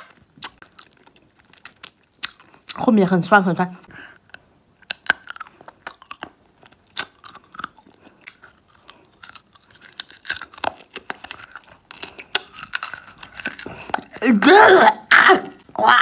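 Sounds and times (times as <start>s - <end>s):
hard candy crunching: 0.0s - 3.0s, 4.1s - 16.0s.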